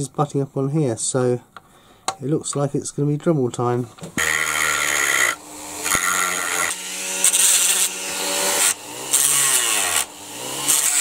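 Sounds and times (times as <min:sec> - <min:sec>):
rotary tool grinding plastic: 0:04.1 - 0:11.0.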